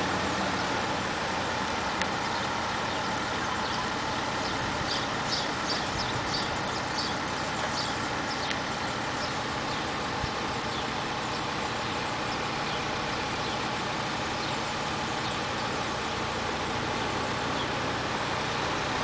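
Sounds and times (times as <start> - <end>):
crane diesel engine running: 0.0 - 19.0
bird chirping: 2.2 - 10.0, 10.6 - 16.0, 17.0 - 17.8.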